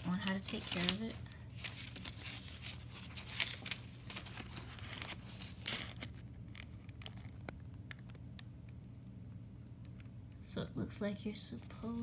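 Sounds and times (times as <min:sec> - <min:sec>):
paper crinkling and rustling: 0:00.0 - 0:08.2.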